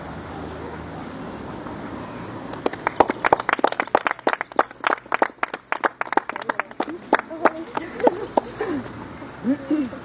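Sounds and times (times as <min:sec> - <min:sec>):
small audience clapping: 0:02.5 - 0:08.7.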